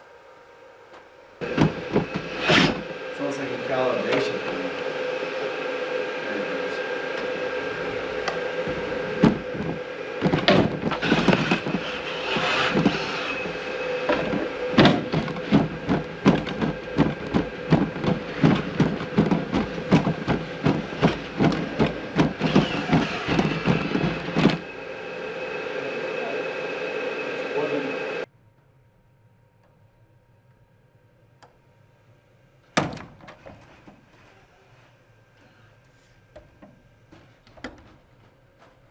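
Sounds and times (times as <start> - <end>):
robot motor and fan whine: 0.0 - 38.9
robot footsteps tapping: 8.7 - 24.6.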